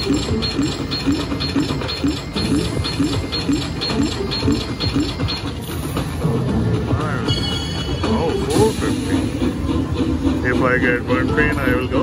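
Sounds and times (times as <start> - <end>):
slot machine coin clinks: 0.0 - 6.1.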